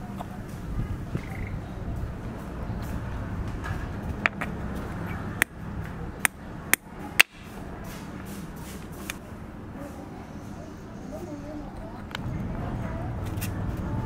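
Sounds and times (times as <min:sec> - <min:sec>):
wooden toy parts clicking: 0:04.1 - 0:05.6, 0:06.2 - 0:07.4.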